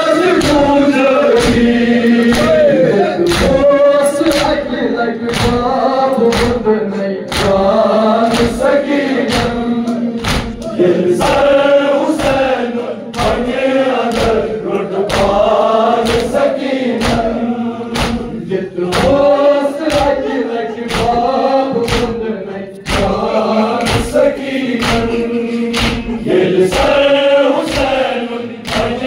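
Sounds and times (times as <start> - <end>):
men chanting in unison: 0.0 - 29.0
chest-beating slaps: 0.4 - 0.8, 1.4 - 4.6, 7.3 - 7.6, 8.3 - 10.8, 16.0 - 19.3, 19.9 - 22.2, 22.8 - 27.0, 27.6 - 28.0, 28.6 - 29.0.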